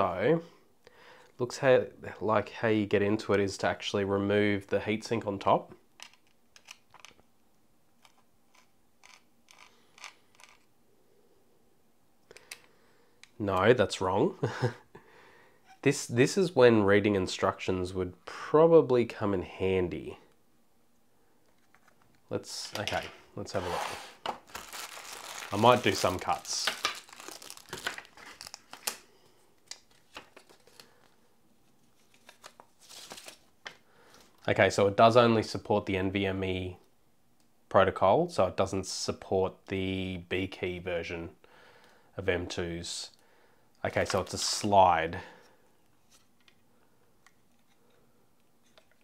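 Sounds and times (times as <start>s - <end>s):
screwdriver clicks and scrapes: 8.0s - 10.7s
paper leaflet rustling: 23.5s - 29.0s, 29.6s - 31.1s, 31.7s - 33.5s.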